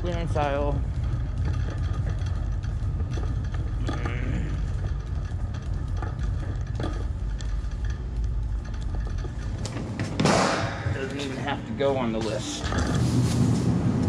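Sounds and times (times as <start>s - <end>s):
wire basket clicking and rattling: 0.0s - 10.2s
shopping cart wheels rumbling: 0.0s - 14.0s.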